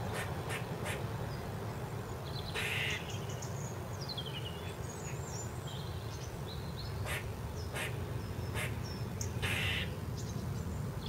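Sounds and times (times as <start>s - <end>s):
small birds chirping: 0.0s - 11.0s
harsh hoarse bird call: 2.5s - 3.1s, 9.4s - 9.9s.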